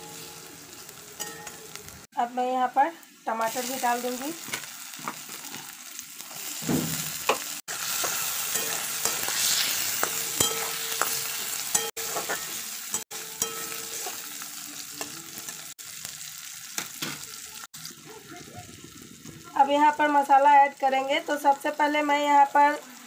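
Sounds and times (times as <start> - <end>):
vegetables sizzling in hot oil: 0.0 - 23.0
metal spatula scraping pan: 7.3 - 12.6.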